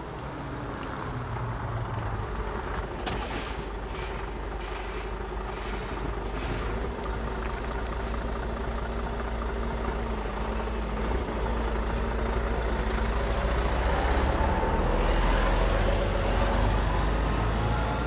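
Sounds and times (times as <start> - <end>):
truck diesel engine running low: 0.2 - 18.0.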